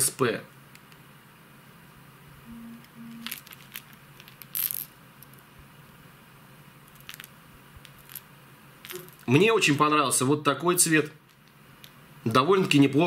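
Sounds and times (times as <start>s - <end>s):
faint low hum: 0.1s - 13.0s
brief low tones: 2.4s - 3.4s.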